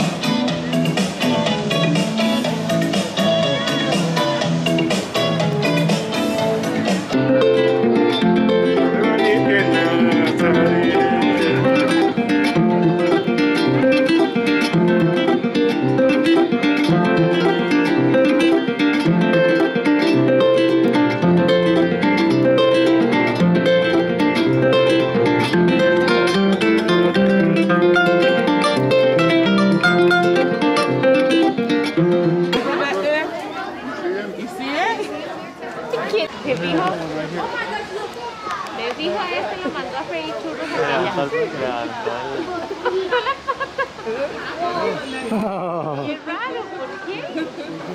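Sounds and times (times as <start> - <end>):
harp-lute plucked melody: 5.2 - 32.8.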